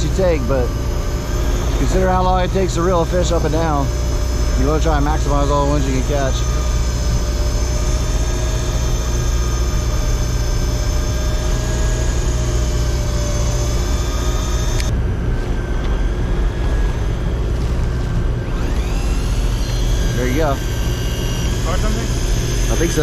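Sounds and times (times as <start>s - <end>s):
boat engines droning: 0.0s - 23.0s
high whine: 0.0s - 23.0s.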